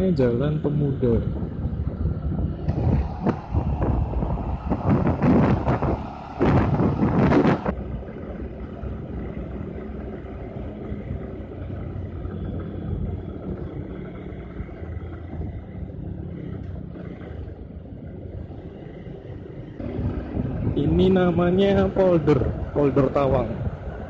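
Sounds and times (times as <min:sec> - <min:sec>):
tyre and traffic noise: 0:00.0 - 0:24.0
wind buffeting microphone: 0:00.6 - 0:08.0, 0:16.8 - 0:24.0
motorcycle engine running: 0:01.3 - 0:24.0.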